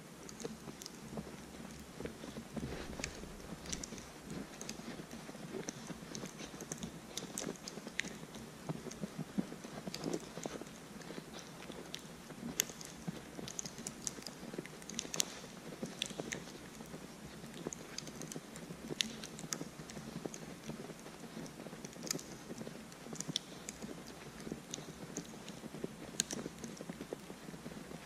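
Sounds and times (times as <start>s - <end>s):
footsteps crunching in snow: 2.5s - 4.8s.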